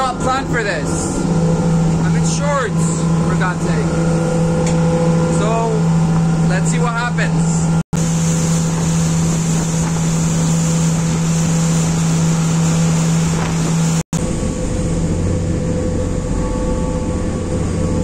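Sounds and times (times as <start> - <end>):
ship engines droning: 0.0 - 18.0
rushing water: 8.0 - 14.0
wind on microphone: 8.0 - 18.0.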